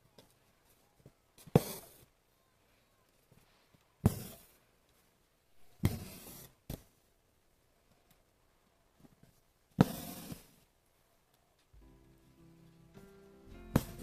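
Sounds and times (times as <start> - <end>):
needle popping through fabric: 4.0 - 4.6, 9.8 - 10.6
thread rasping through fabric: 9.8 - 10.6.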